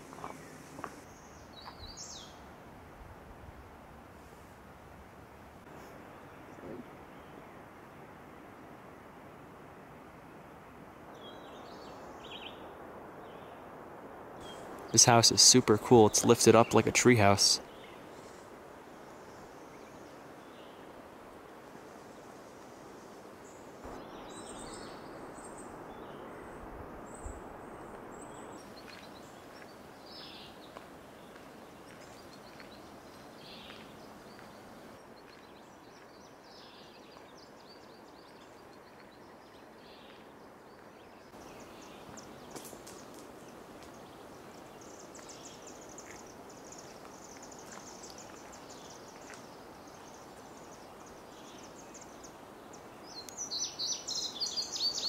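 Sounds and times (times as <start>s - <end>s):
songbirds chirping: 0.0s - 2.6s, 5.6s - 8.2s, 10.1s - 13.8s, 14.4s - 55.0s
faint air hiss: 0.0s - 35.0s.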